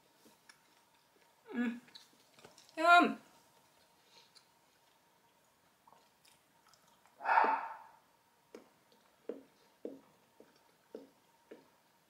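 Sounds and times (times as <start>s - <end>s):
person chewing chocolate: 0.2s - 2.8s, 3.6s - 7.8s, 8.5s - 12.0s
wet chewing clicks: 0.4s - 2.8s, 3.8s - 7.6s.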